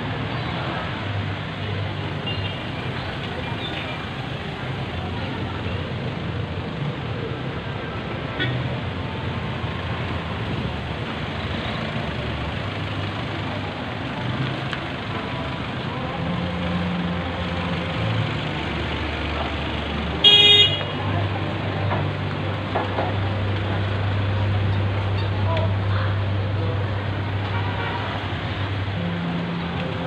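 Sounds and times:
vehicle engines running: 0.0 - 30.0
vehicle horn honk: 20.2 - 21.0, 27.5 - 28.2.

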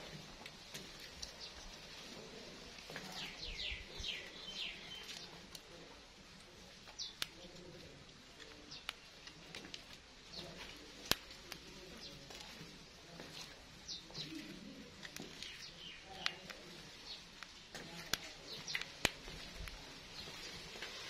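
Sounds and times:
sharp clicks: 17.4 - 19.8.

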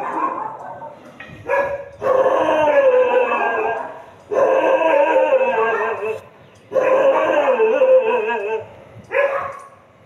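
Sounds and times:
dog howling: 2.0 - 6.2, 6.8 - 8.7.

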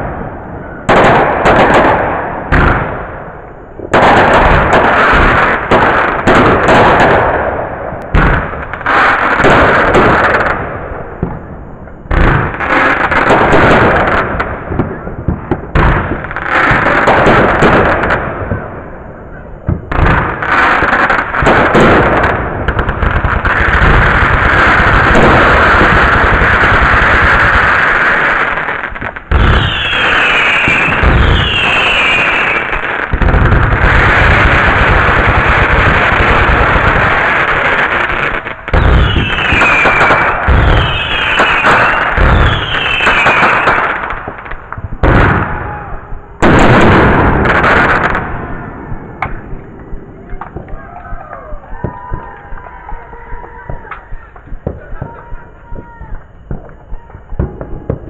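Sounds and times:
fireworks crackling and popping: 0.0 - 58.0.

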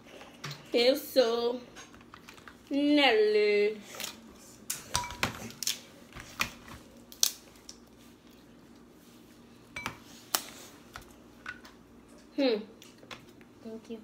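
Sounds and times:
crab shells cracking: 4.7 - 5.9, 7.0 - 7.9.

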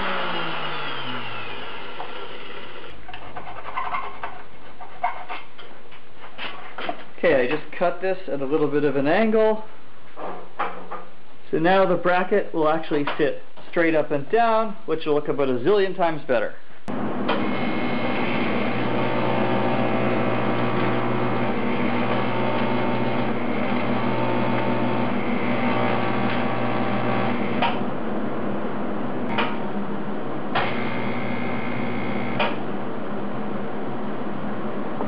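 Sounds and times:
welding arc buzzing: 0.0 - 3.0, 16.9 - 27.9, 30.5 - 32.7.

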